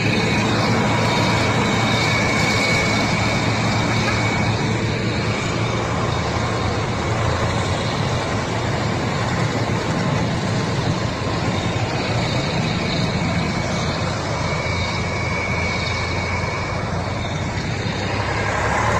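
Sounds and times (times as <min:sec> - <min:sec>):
constant rushing noise: 0:00.0 - 0:18.9
truck diesel engines running: 0:00.0 - 0:18.9.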